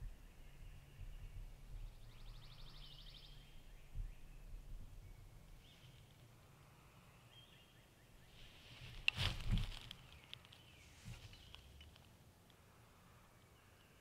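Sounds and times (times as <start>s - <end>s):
songbird trills and calls: 0.0s - 6.2s.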